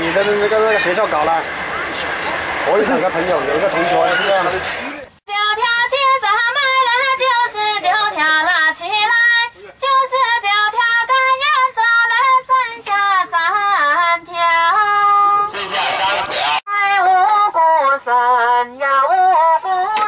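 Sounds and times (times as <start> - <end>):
woman singing high melody: 5.3 - 15.5.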